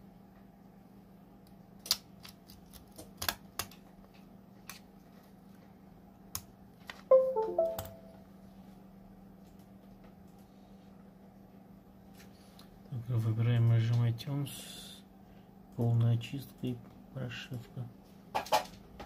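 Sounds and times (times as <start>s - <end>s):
computer chime falling notes: 7.1s - 8.2s.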